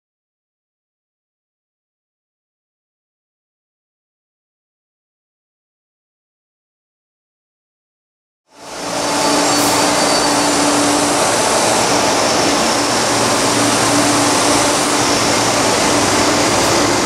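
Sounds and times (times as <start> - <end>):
electric train running: 8.5 - 17.0
steady hum: 9.9 - 17.0.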